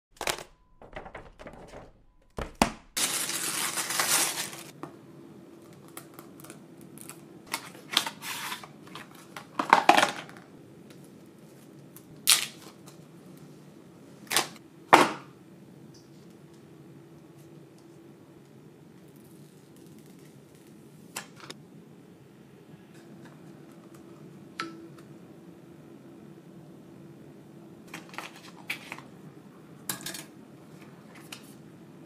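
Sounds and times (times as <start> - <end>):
plastic bag crinkling: 3.0 - 4.8
faint steady hum: 3.0 - 32.0.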